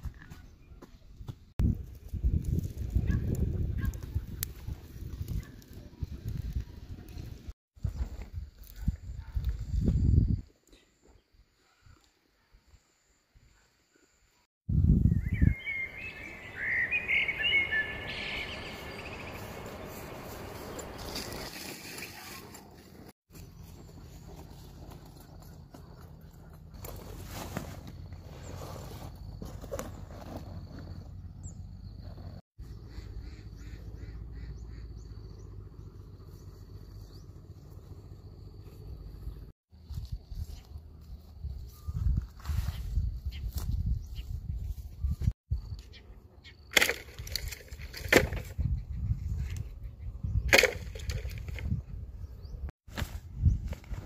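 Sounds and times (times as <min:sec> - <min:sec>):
outdoor background noise: 0:00.0 - 0:54.0
birds chirping: 0:14.9 - 0:22.2, 0:30.6 - 0:39.5.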